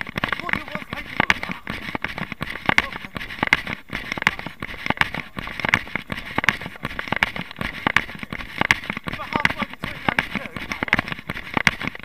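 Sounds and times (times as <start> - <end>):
running footsteps on dirt: 0.0 - 12.0.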